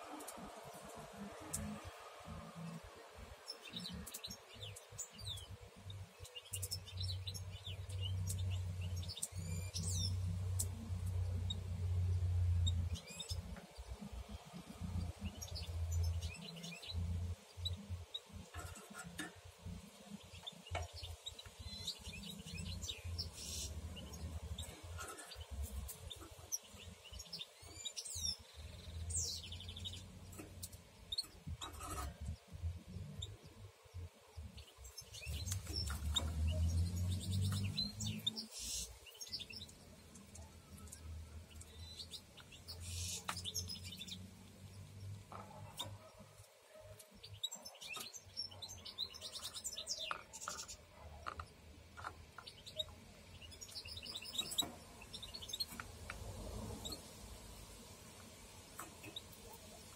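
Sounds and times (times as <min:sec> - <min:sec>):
canaries chirping: 0:00.0 - 0:59.9.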